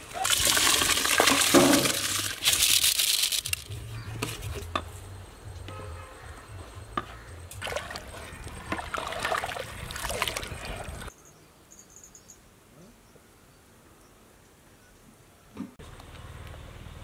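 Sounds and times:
water sloshing and splashing: 0:00.0 - 0:03.7, 0:07.5 - 0:11.1.

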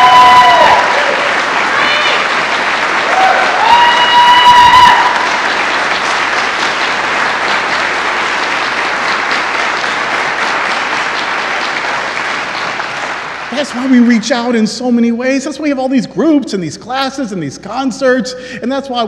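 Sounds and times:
person cheering: 0:00.0 - 0:02.3, 0:03.1 - 0:05.2
congregation applauding: 0:00.0 - 0:15.0.

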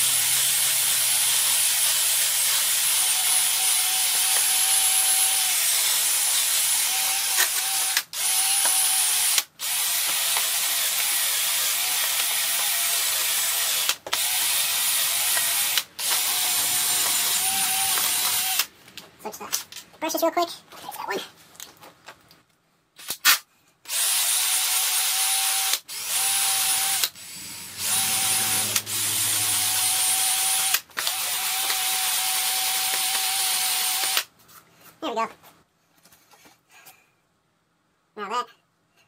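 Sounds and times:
cordless drill brush whirring: 0:00.0 - 0:18.7, 0:23.9 - 0:34.3.

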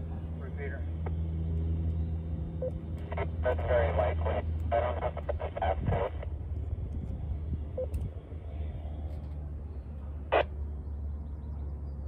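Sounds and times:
low background hum: 0:00.0 - 0:12.0.

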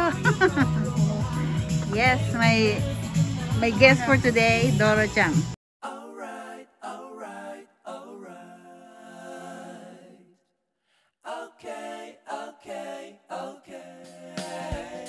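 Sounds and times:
person singing: 0:00.0 - 0:05.2.

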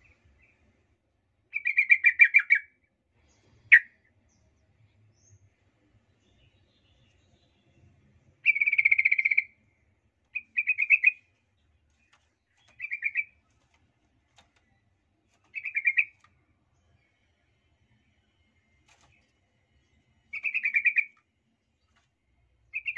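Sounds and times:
bulbul chattering: 0:10.3 - 0:11.2, 0:12.0 - 0:13.4, 0:15.4 - 0:16.3, 0:20.2 - 0:21.2.

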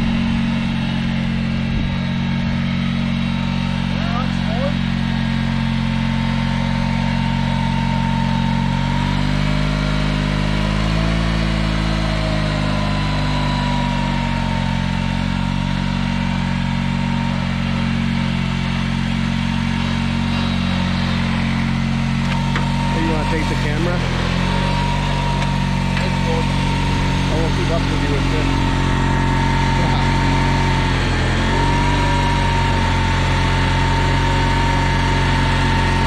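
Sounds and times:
riding lawn mower engine running: 0:00.0 - 0:36.0.

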